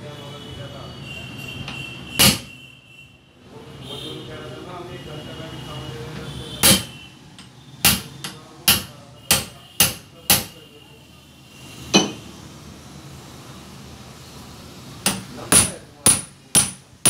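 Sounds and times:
hammer striking steel tube: 2.2s - 2.5s, 6.6s - 10.6s, 15.0s - 16.9s.

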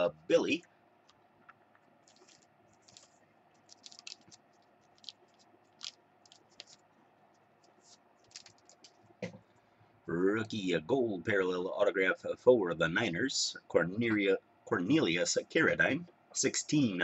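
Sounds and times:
trading cards clicking and rustling: 2.0s - 6.8s, 7.6s - 9.4s.

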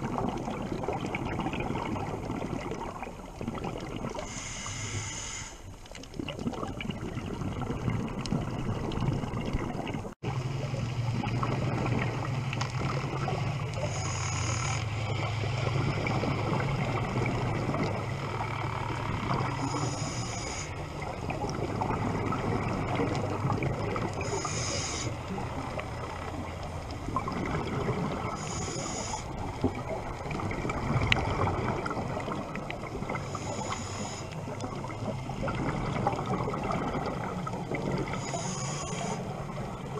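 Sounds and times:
regulator inhalation hiss: 4.2s - 5.7s, 19.6s - 20.8s, 24.2s - 25.2s, 28.4s - 29.3s, 33.3s - 34.4s, 38.2s - 39.2s
bubbling exhalation: 6.1s - 10.2s.

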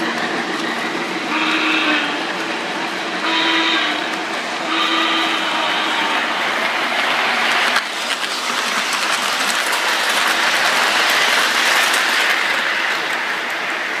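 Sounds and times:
model train cars rolling on track: 0.0s - 14.0s.

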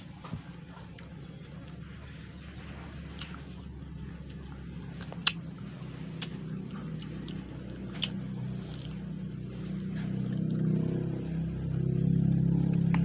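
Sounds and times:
low motor-like hum: 0.0s - 13.0s.

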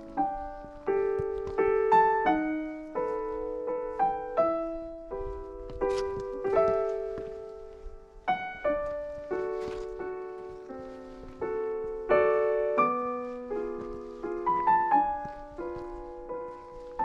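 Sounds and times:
solo piano music: 0.0s - 17.0s.

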